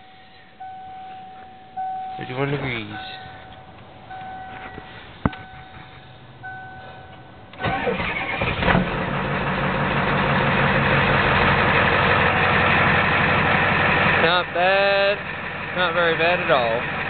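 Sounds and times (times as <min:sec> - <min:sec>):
diesel engine cranking and idling: 0:00.0 - 0:17.0
dashboard warning chime: 0:00.6 - 0:07.8.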